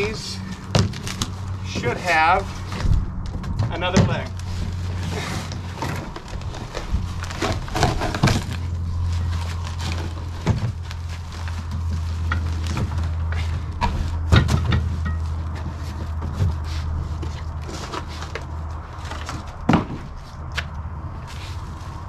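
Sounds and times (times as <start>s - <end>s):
steady low rumble: 0.0s - 22.0s
cardboard boxes knocking and rustling: 2.7s - 20.2s.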